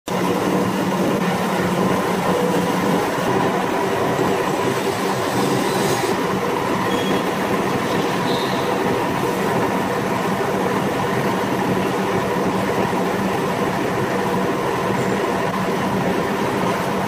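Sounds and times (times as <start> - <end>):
wire granulator machine running: 0.1 - 17.0.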